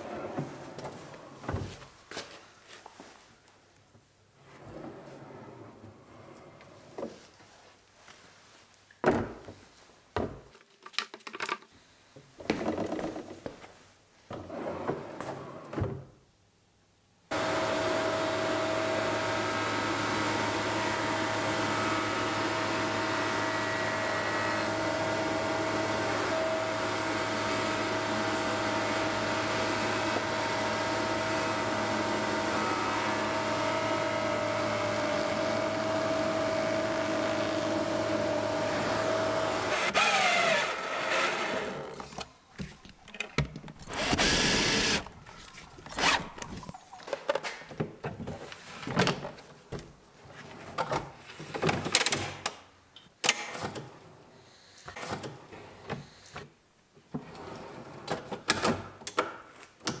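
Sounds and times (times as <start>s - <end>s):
cordless drill driving screws: 39.5s - 42.0s, 43.8s - 45.2s.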